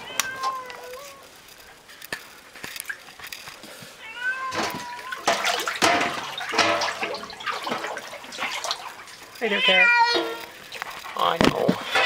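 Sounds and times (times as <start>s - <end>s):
cat meowing: 0.0s - 1.2s, 4.0s - 5.3s, 9.4s - 10.5s.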